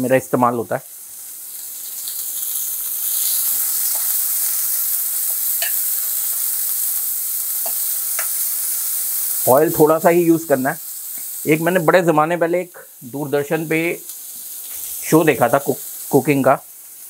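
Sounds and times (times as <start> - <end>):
onions sizzling in oil: 0.0 - 17.0.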